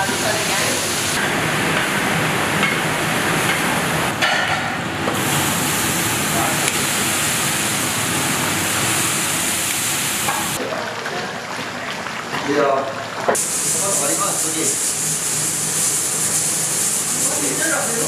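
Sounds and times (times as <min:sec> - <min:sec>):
water hissing into steam: 0:00.0 - 0:04.1, 0:05.2 - 0:10.7, 0:13.4 - 0:18.0
vegetables sizzling in hot oil: 0:00.0 - 0:04.2, 0:05.1 - 0:10.6, 0:13.4 - 0:18.0.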